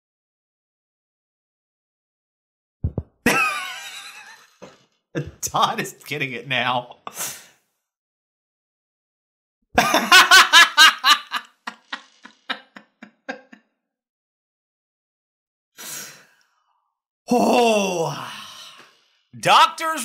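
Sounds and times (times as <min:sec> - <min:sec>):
man laughing: 0:02.9 - 0:04.5, 0:05.2 - 0:06.0, 0:09.8 - 0:13.6
breathy exhale: 0:15.8 - 0:16.8.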